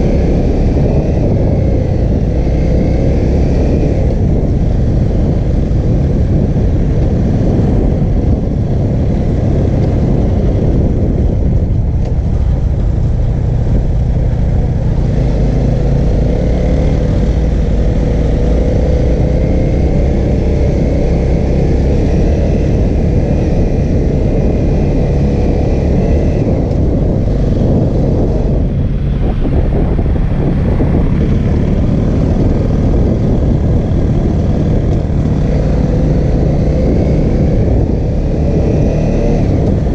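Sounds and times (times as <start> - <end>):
motorcycle engine running: 0.0 - 39.9.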